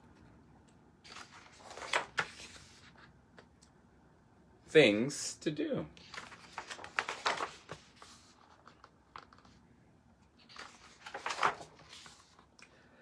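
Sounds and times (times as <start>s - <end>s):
book pages being turned: 1.0s - 3.1s, 6.0s - 9.6s, 10.3s - 12.5s.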